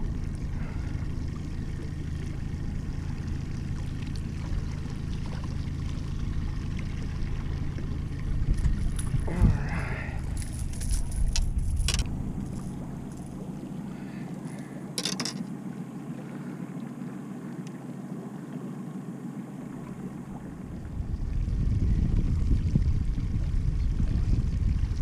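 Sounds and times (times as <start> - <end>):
boat engine low rumble: 0.0 - 25.0
water wash: 0.0 - 25.0
clicks and rattles: 10.4 - 13.3, 15.0 - 15.5.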